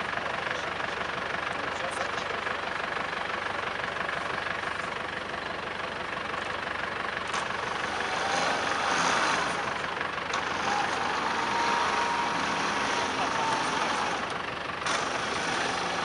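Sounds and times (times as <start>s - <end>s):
truck engine running: 0.0s - 16.0s
winch pulling cable: 7.3s - 16.0s.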